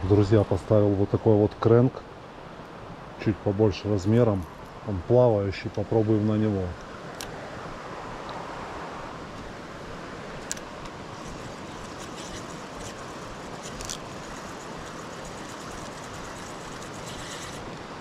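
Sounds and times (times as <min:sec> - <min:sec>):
stream water flowing: 0:00.0 - 0:18.0
fishing reel clicks and rattles: 0:11.3 - 0:17.8.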